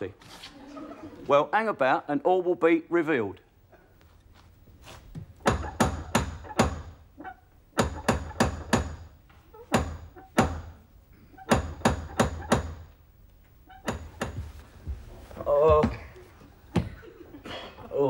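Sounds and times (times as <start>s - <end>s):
loud sharp knocks: 5.4s - 7.0s, 7.8s - 9.1s, 9.7s - 10.8s, 11.5s - 12.9s, 13.9s - 14.5s.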